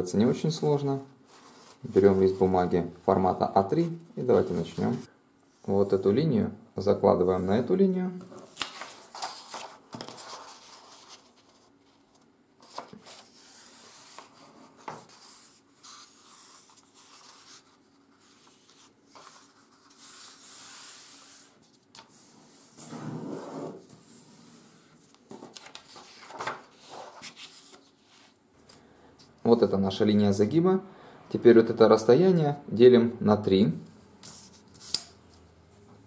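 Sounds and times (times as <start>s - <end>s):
paper rustling and rubbing: 1.3s - 2.6s, 8.4s - 28.4s.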